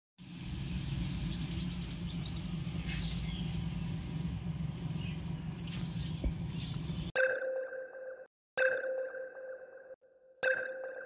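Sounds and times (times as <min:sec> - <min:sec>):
small birds chirping: 0:00.2 - 0:07.1
steady low rumble: 0:00.2 - 0:07.1.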